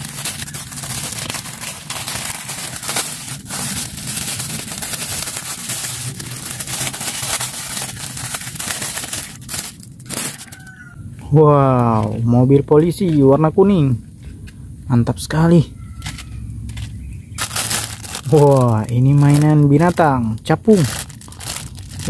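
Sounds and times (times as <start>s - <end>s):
plastic bag crinkling: 0.0s - 10.8s, 17.4s - 22.0s.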